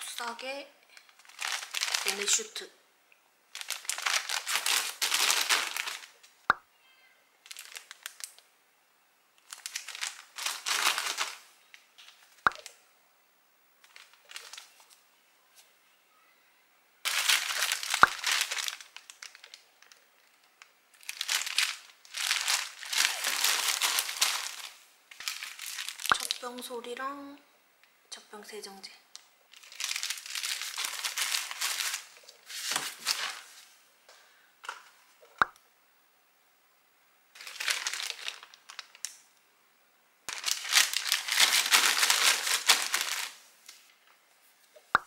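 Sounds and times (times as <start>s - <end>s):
plastic bags crinkling: 1.0s - 2.6s, 3.5s - 6.2s, 7.4s - 8.4s, 9.4s - 12.7s, 13.8s - 15.0s, 17.0s - 26.7s, 29.5s - 33.6s, 37.4s - 39.1s, 40.3s - 44.2s.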